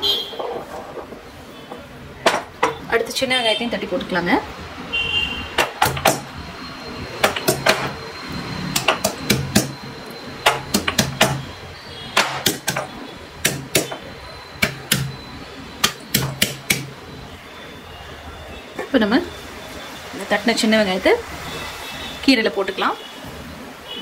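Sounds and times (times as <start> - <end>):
stone pestle pounding in mortar: 5.6 - 6.3, 7.2 - 8.0, 8.7 - 9.8, 10.5 - 11.5, 12.2 - 14.0, 14.6 - 15.2, 15.8 - 17.0.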